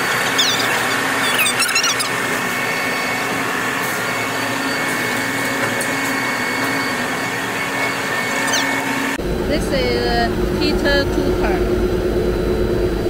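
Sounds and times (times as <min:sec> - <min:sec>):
high squeaks: 0:00.0 - 0:03.0, 0:08.3 - 0:08.9
machinery and exhaust fans droning: 0:00.0 - 0:13.0.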